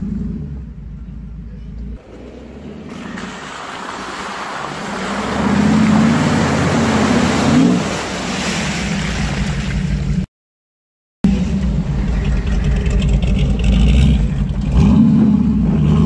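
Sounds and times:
truck engine revving: 0.0 - 10.2, 11.2 - 16.0
water splashing: 2.0 - 10.3.

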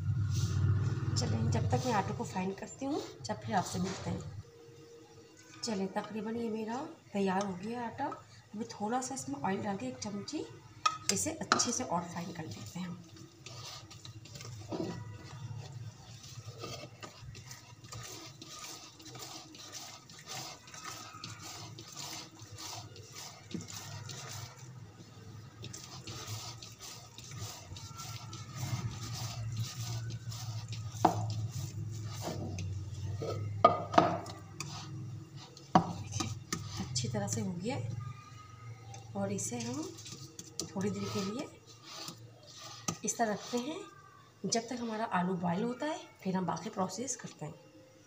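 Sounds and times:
hands kneading wet dough: 11.7 - 33.6, 34.2 - 37.8, 38.9 - 44.0.

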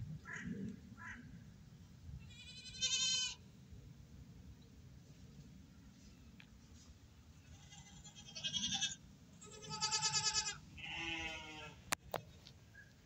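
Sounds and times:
goats bleating: 7.5 - 11.8.

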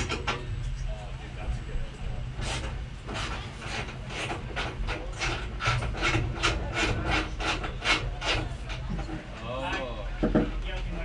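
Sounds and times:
steady low hum: 0.0 - 11.0
rhythmic rasping strokes: 2.4 - 9.3.

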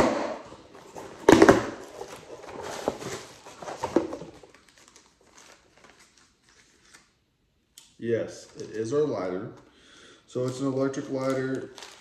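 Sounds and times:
packaging rustling and crinkling: 0.6 - 7.1, 10.4 - 12.0.

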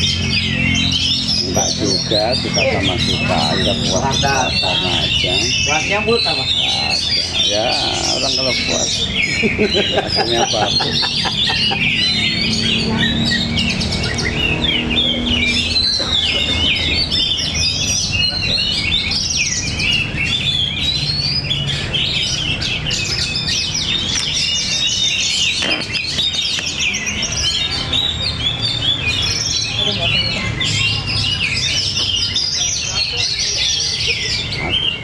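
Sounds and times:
songbirds chorus: 0.0 - 35.0.

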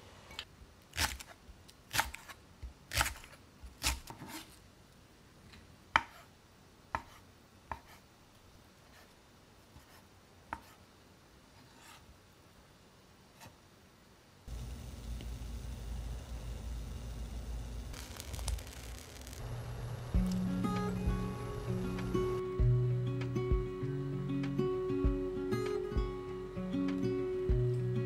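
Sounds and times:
knife chopping on cutting board: 6.9 - 8.0.

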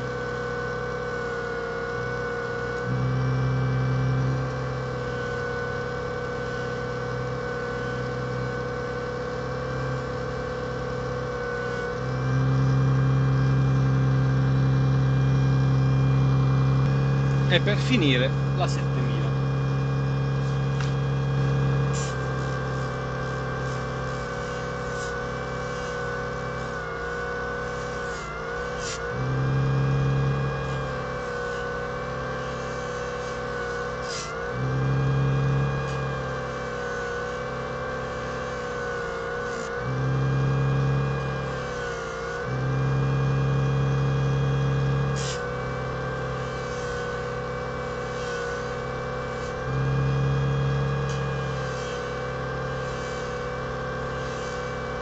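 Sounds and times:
electric disc sander running: 0.0 - 55.0
low hum: 2.0 - 33.8.

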